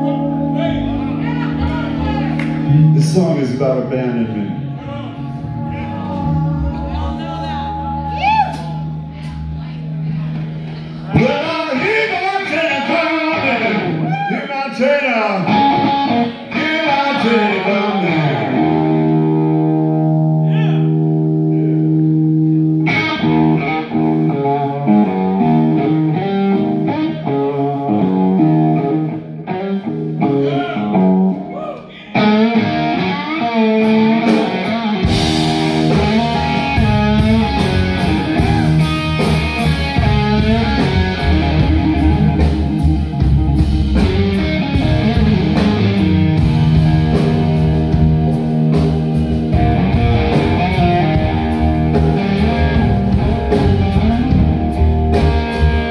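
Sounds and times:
bass guitar: 0.0 - 55.9
distorted electric guitar: 0.0 - 55.9
drum kit: 33.8 - 55.9.

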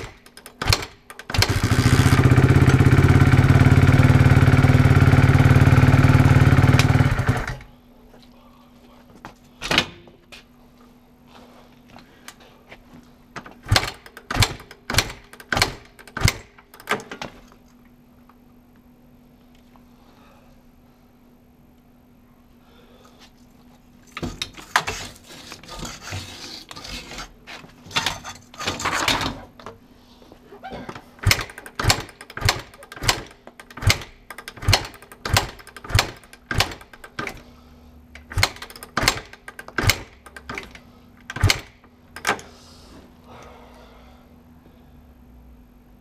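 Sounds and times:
motorcycle engine being kick-started: 0.0 - 7.7, 13.4 - 17.6, 30.9 - 37.5, 38.2 - 42.6.

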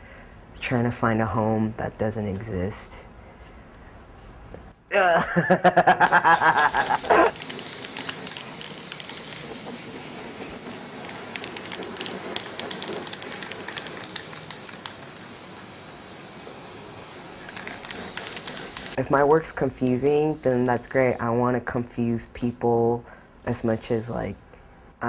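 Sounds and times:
spray-paint can hissing: 6.4 - 21.4.

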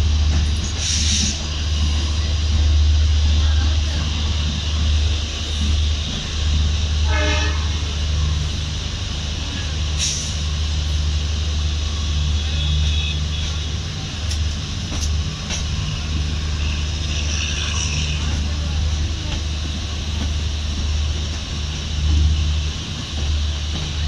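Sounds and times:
train wheels rumbling on rails: 0.0 - 24.0
sharp clicks of train wheels: 13.4 - 24.0.

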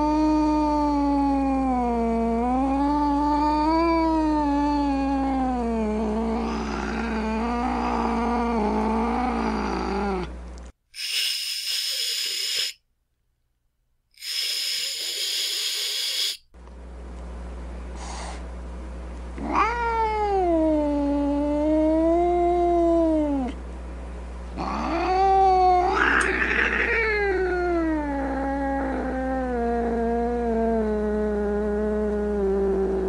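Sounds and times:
cat hissing: 11.0 - 12.8, 14.2 - 16.4, 18.0 - 18.4, 24.6 - 27.7
cat yowling: 19.4 - 23.5, 24.6 - 30.5.

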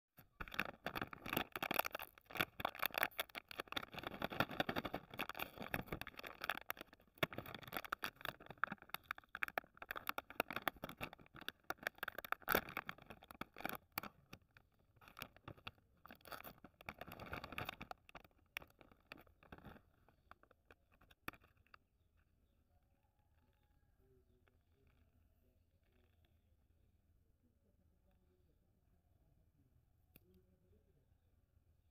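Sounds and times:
plastic wrapper crinkling: 0.2 - 21.8.

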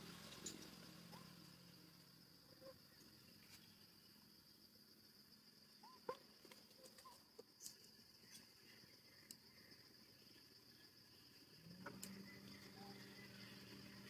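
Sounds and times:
soft chirps: 5.7 - 14.0
high-pitched insect drone: 8.1 - 14.0.

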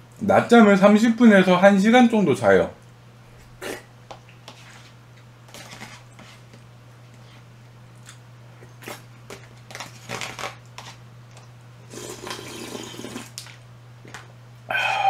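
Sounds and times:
steady low hum: 0.0 - 15.0
food crunching and chewing: 5.2 - 14.2.

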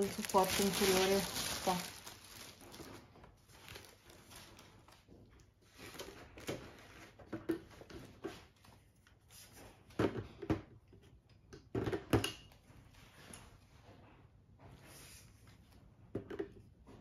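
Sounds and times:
handling noises: 0.0 - 5.0.

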